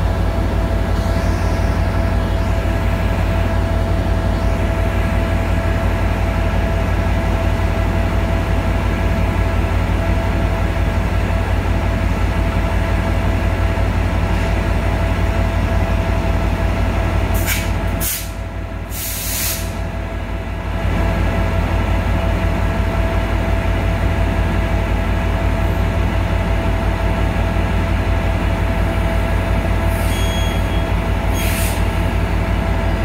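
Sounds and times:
locomotive engine idling: 0.0 - 19.0, 19.6 - 33.0
air hisses: 17.4 - 19.7.

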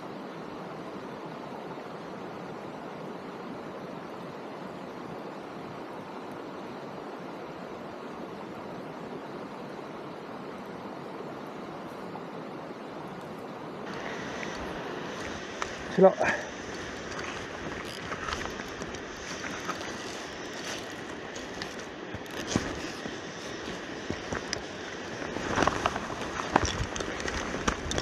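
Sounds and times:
heavy rain hissing: 0.0 - 28.0
faint ticks: 13.2 - 15.8.

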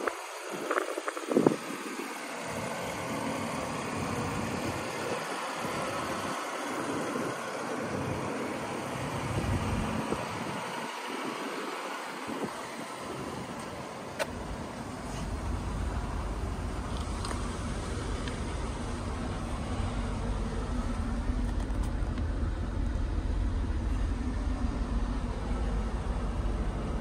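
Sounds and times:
car engine idling: 0.0 - 27.0.

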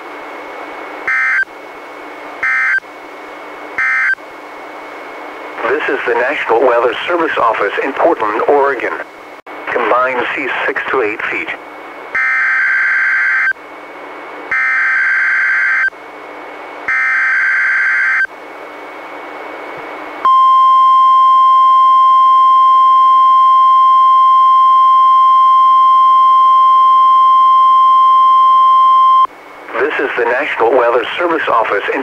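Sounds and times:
steady warning alarm tone: 1.1 - 1.5, 2.4 - 2.8, 3.8 - 4.2, 12.1 - 13.6, 14.5 - 15.9, 16.9 - 18.3, 20.2 - 29.3
radio hiss: 5.5 - 11.7, 29.6 - 32.0.

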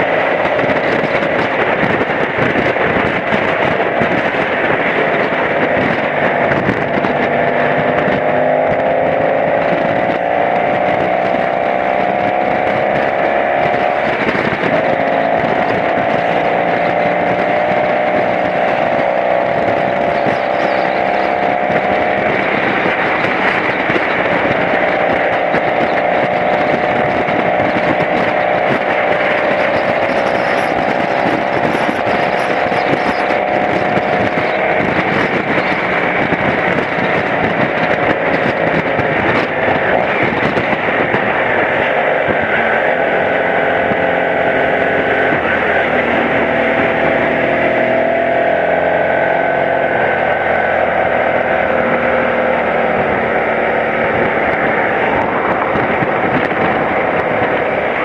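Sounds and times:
motorcycle engine running: 0.0 - 58.0
wind noise on microphone: 0.0 - 58.0.

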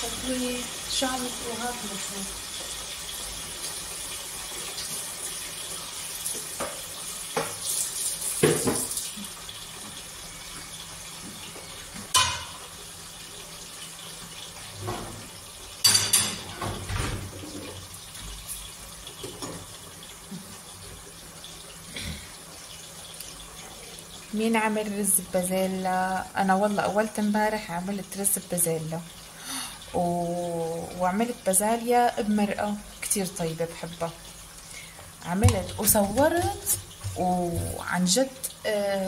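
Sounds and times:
water running from tap: 0.0 - 39.0
dishes clinking: 12.1 - 12.6, 15.8 - 17.8.

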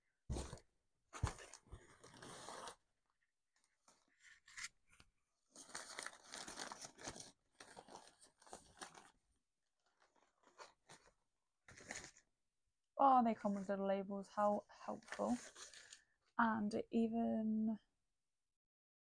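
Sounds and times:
newspaper crinkling and tearing: 3.8 - 9.2.

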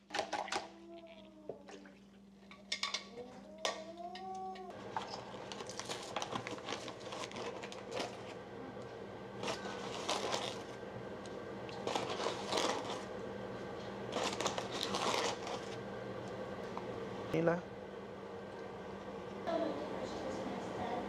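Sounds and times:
steady low hum: 0.0 - 21.0
rustling and crinkling: 4.8 - 8.4, 9.4 - 10.8, 11.8 - 13.1, 14.1 - 15.8.

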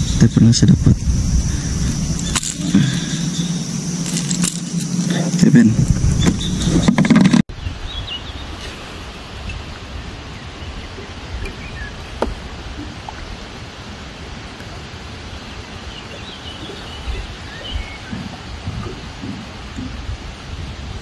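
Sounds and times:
outdoor background noise: 0.0 - 21.0
faint bird chirps: 15.8 - 19.9.

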